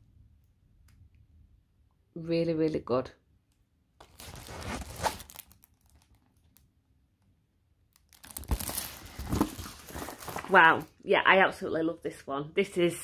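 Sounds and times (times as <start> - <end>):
plastic film rustling and crinkling: 4.0 - 6.6, 8.0 - 10.9.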